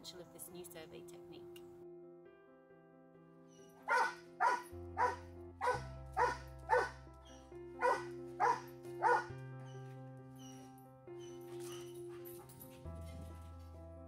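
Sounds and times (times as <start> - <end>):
background music: 0.0 - 14.0
large dog barking: 3.8 - 7.0, 7.8 - 9.3.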